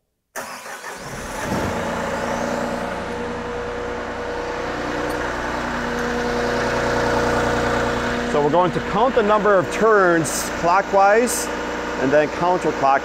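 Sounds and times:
engine cranking and starting: 0.4 - 3.5.

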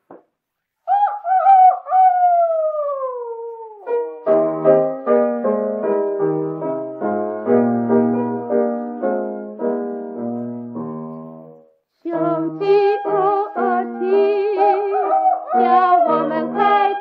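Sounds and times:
piano chords: 3.7 - 17.0
woman singing with vibrato: 12.1 - 17.0.

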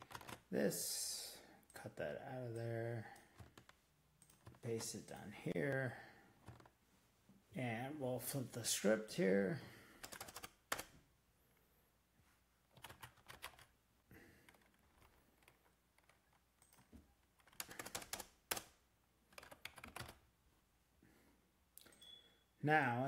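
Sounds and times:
faint keyboard typing: 0.0 - 0.5, 2.5 - 5.3, 6.4 - 6.8, 10.0 - 11.0, 12.6 - 20.3.

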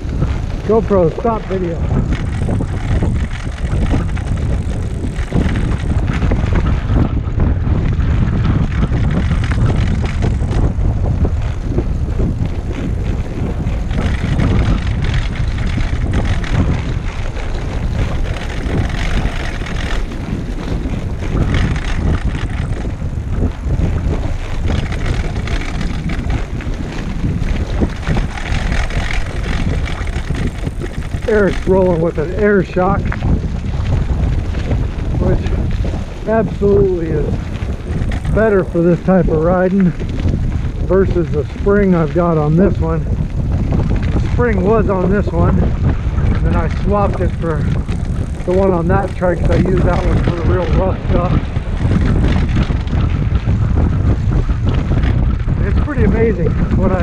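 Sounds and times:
tyres crunching over dirt: 0.0 - 7.1, 7.9 - 57.0
wind rumbling on microphone: 0.0 - 57.0.

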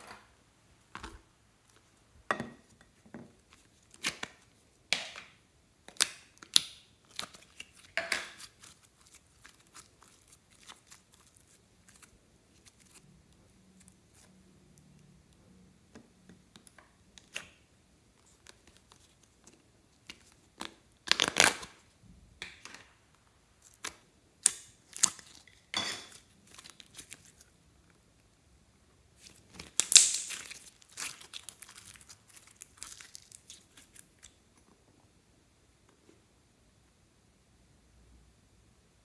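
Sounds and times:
foil wrapping crinkling and tearing: 29.2 - 34.1.

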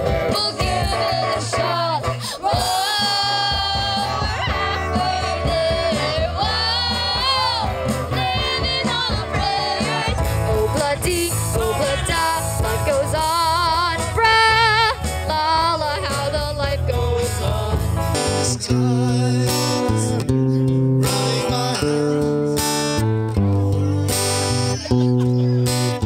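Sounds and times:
acoustic guitar strumming chords: 0.0 - 26.0
live band with guitars and bass: 0.0 - 26.0
woman singing: 0.2 - 17.6.

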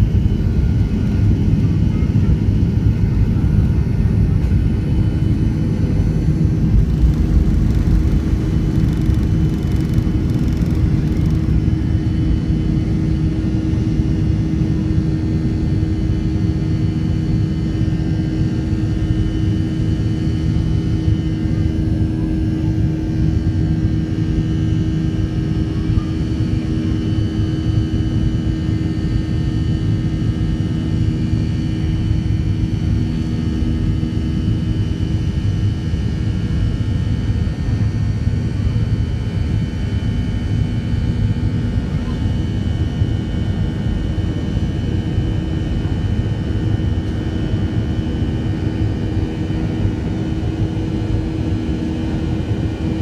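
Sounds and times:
runway rumble: 0.0 - 13.2
jet engines roaring in cabin: 0.0 - 53.0.

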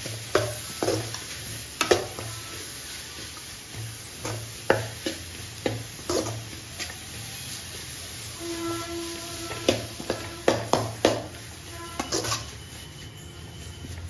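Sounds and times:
faint frying sizzle: 0.0 - 14.0
metal spatula scraping pan: 6.0 - 6.9, 8.4 - 13.7.

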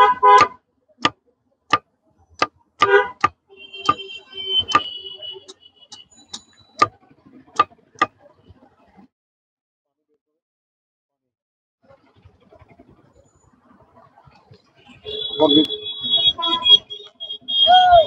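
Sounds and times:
steady background tone: 14.8 - 17.7.

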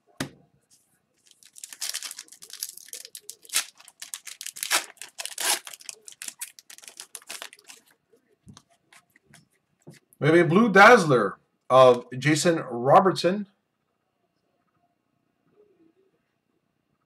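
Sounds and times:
foil wrapper crinkling and ripping: 1.2 - 7.9.

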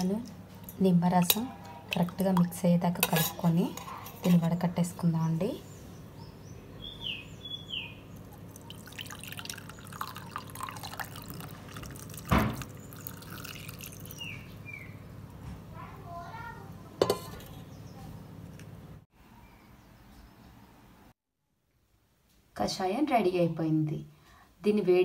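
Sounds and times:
liquid splashing and dripping: 8.5 - 14.2.

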